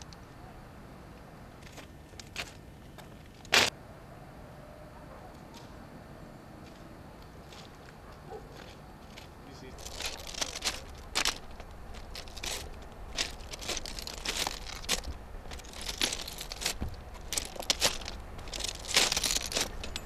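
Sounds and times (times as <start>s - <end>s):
low steady rumble: 0.0s - 20.0s
footsteps crunching on gravel: 6.6s - 20.0s.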